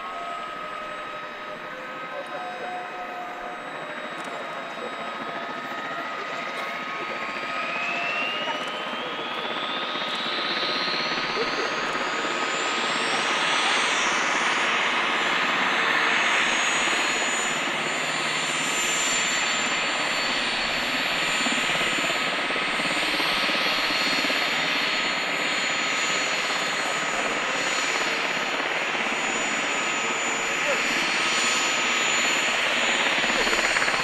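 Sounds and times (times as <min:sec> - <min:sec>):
turbine whine: 0:00.0 - 0:34.0.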